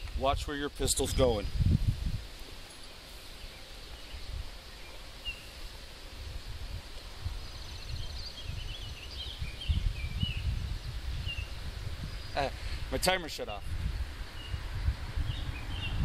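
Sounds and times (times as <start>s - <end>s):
bird chirping and twittering: 0.0s - 1.8s, 2.6s - 5.7s, 6.7s - 13.2s, 13.8s - 16.0s
wind buffeting microphone: 0.0s - 2.6s, 6.1s - 16.0s.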